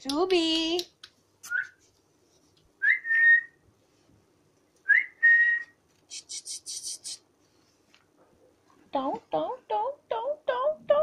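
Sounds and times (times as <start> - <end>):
person whistling: 1.5 - 1.8, 2.8 - 3.6, 4.9 - 5.8.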